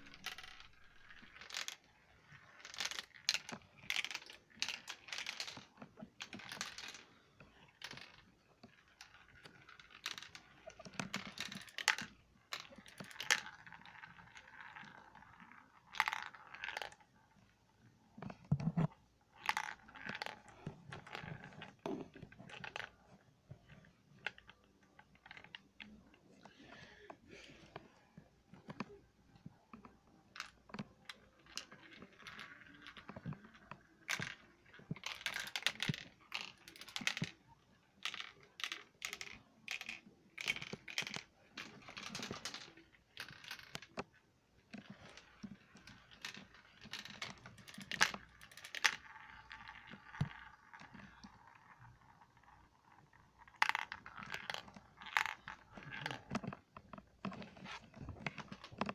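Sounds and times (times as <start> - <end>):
marbles clattering through marble run: 0.0 - 17.1, 19.4 - 23.0, 29.8 - 44.2, 44.8 - 56.6.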